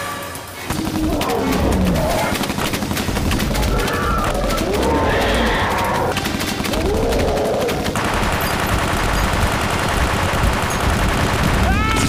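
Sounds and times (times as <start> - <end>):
giant creature roaring: 3.5 - 6.1, 6.7 - 7.9
automatic rifle fire: 6.0 - 12.0.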